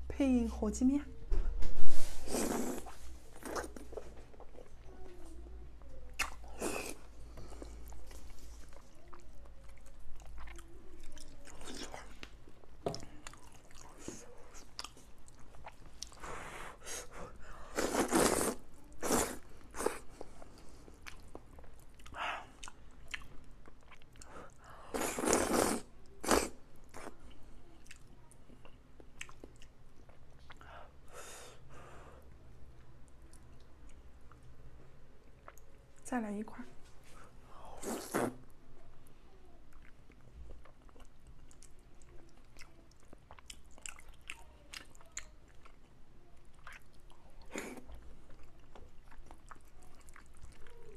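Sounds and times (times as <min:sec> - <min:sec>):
slurping noodles: 0:02.0 - 0:04.0, 0:17.7 - 0:20.1, 0:24.9 - 0:27.1, 0:37.8 - 0:38.4
wet chewing and biting: 0:39.8 - 0:45.9, 0:46.5 - 0:50.9.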